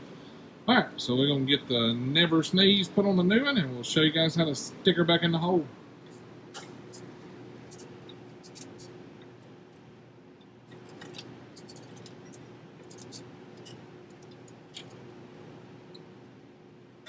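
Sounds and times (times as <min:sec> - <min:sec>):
steady background hum: 0:00.0 - 0:17.0
metallic clicks and scrapes: 0:06.1 - 0:09.0, 0:10.7 - 0:15.0.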